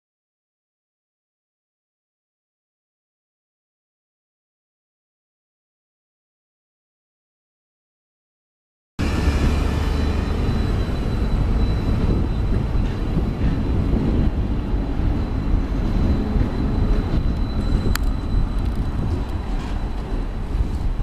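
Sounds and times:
tram rumbling on rails: 9.0 - 21.0
faint high whine: 14.6 - 20.8.

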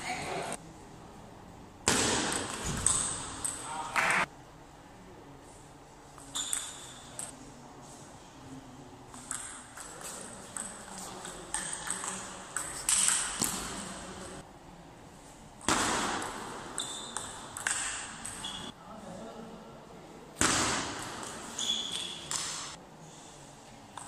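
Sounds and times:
table tennis ball hits: 1.8 - 4.3, 15.6 - 18.6.

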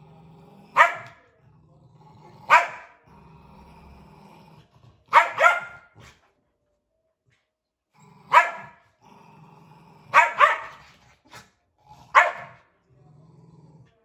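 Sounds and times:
dogs growling: 0.0 - 6.4, 7.9 - 14.0
dog barking: 0.8 - 1.2, 2.5 - 3.0, 5.1 - 6.0, 8.3 - 8.8, 10.1 - 10.9, 12.1 - 12.6.

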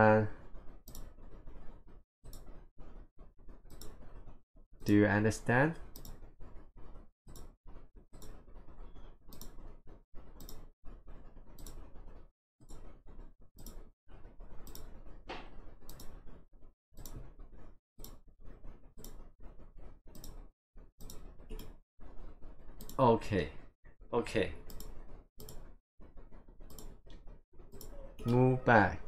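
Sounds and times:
computer mouse clicking: 0.6 - 1.7, 2.3 - 2.6, 3.5 - 4.2, 5.7 - 11.9, 13.6 - 16.2, 17.0 - 23.0, 24.7 - 28.4.

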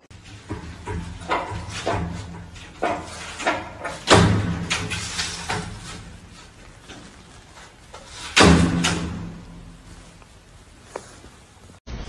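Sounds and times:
sliding window rattling and banging: 0.0 - 10.4.

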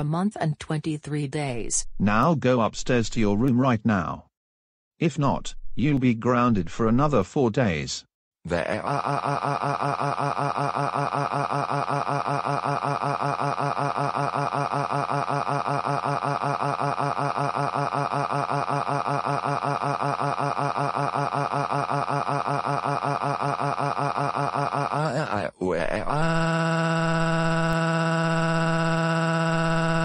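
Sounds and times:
synthesized voice crying wail: 8.5 - 30.0.

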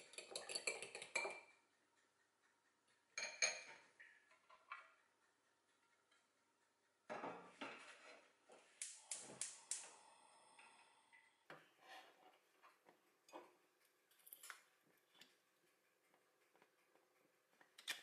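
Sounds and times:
faint knocks and clinks: 0.0 - 1.6, 3.2 - 5.0.

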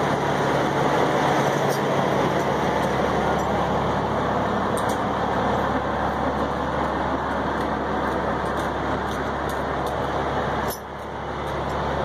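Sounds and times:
diesel truck idling: 0.0 - 12.0.

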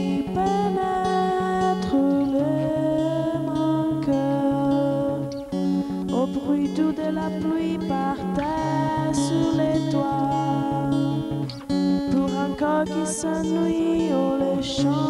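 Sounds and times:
plucked acoustic guitar: 0.0 - 15.0.

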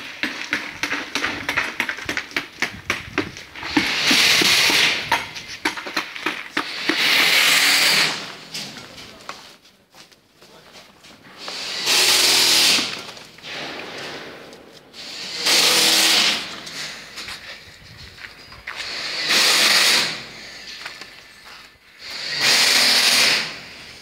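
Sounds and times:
knocks and clatter: 0.0 - 9.2
loud hissing bursts: 3.6 - 5.2, 6.6 - 8.4, 11.4 - 17.1, 18.8 - 20.8, 22.0 - 24.0.

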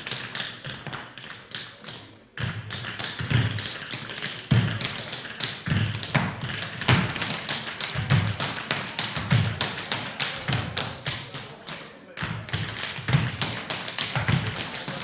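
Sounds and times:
tap shoes on wooden floor: 12.2 - 14.7.

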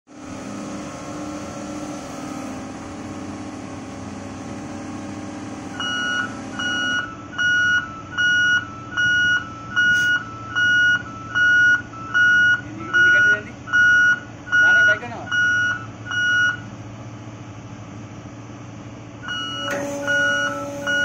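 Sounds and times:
heavy machinery humming: 0.1 - 21.0
vehicle reversing alarm beeping: 5.6 - 16.7, 19.2 - 21.0.

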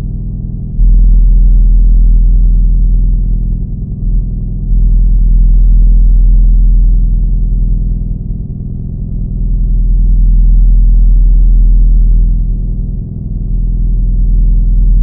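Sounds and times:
low droning rumble: 0.0 - 15.0.

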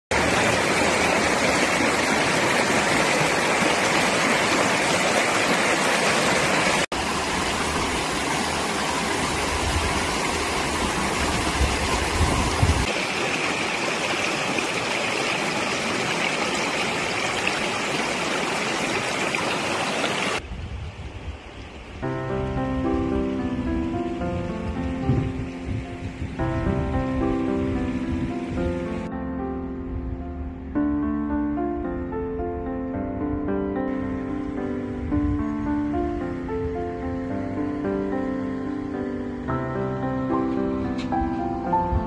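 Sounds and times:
river water rushing over rocks: 0.1 - 20.4
music: 22.0 - 42.0.

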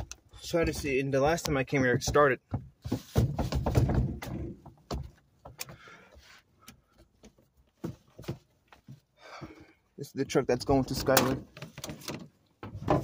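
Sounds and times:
handling clicks and knocks: 10.9 - 13.0.

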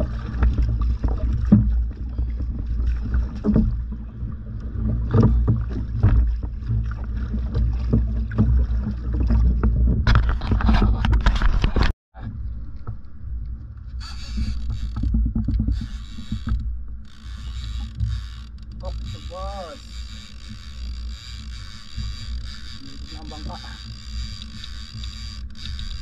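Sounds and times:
paddle splashing in water: 0.0 - 11.9, 14.1 - 26.0
low rumble: 12.2 - 20.2.

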